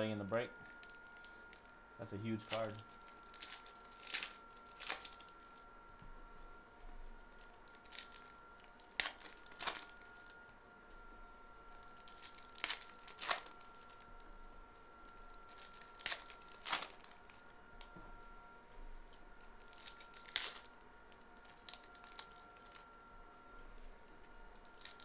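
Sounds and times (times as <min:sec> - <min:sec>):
foil wrappers crinkling and tearing: 0:00.2 - 0:01.7, 0:02.3 - 0:05.7, 0:07.3 - 0:10.4, 0:11.7 - 0:14.3, 0:15.0 - 0:17.9, 0:19.4 - 0:22.9, 0:23.7 - 0:25.0.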